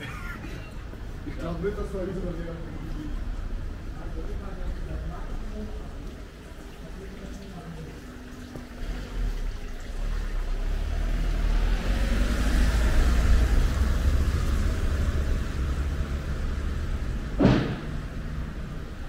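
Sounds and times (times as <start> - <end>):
vehicle passing on wet street: 0.0 - 19.0
sharp thump: 17.4 - 18.1.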